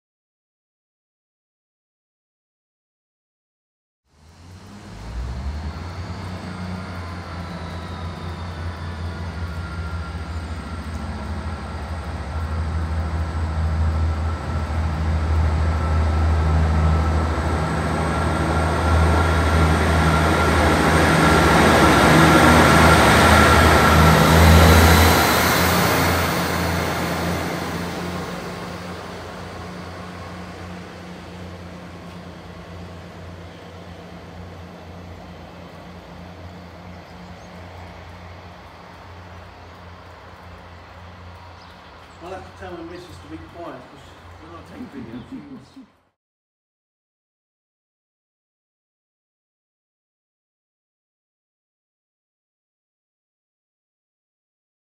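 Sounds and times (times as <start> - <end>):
diesel train engine drone: 4.1 - 46.2
thin whine: 4.4 - 45.9.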